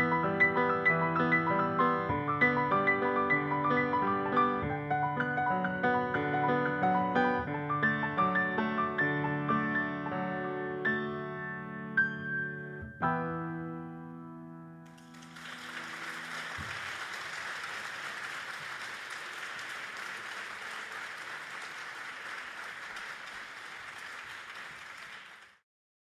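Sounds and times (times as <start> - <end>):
grand piano chords ringing: 0.0 - 14.9
audience applauding: 14.9 - 25.6.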